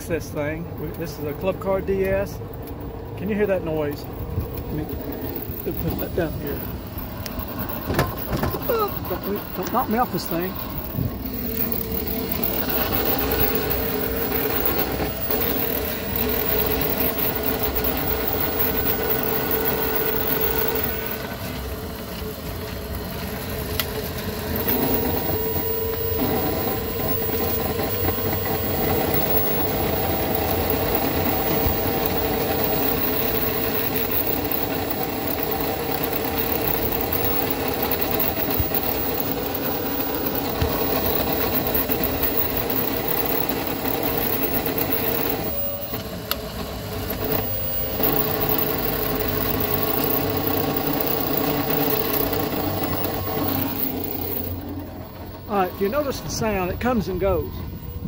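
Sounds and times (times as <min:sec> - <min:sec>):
golf cart differential whine: 0:00.0 - 0:58.0.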